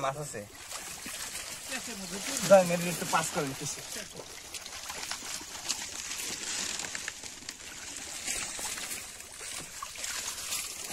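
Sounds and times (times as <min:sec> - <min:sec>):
muddy water sloshing and splashing: 0:00.0 - 0:10.9.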